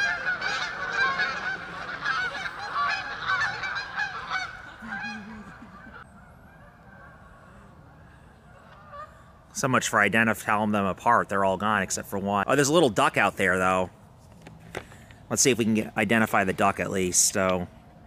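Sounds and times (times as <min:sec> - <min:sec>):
geese honking: 0:00.0 - 0:10.6.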